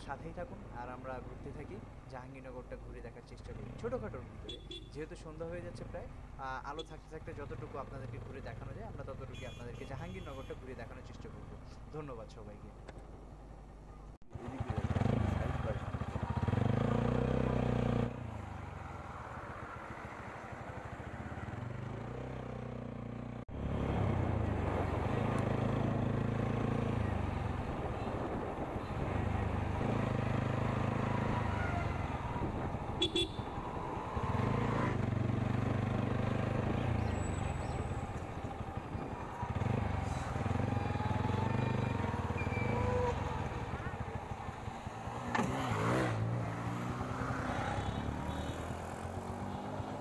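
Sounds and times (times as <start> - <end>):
motorcycle engine running: 14.4 - 18.1, 28.9 - 33.8, 34.7 - 46.7.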